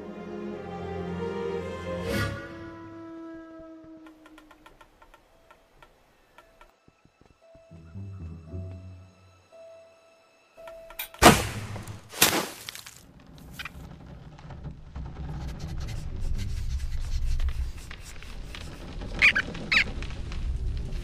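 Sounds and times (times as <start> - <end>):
low rumble: 13.0 - 21.0
short squeaks: 18.5 - 20.0.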